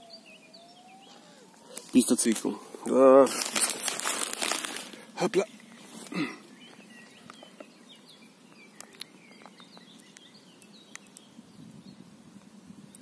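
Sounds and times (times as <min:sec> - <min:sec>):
small birds chirping: 0:00.0 - 0:13.0
faint clicks: 0:08.5 - 0:11.3.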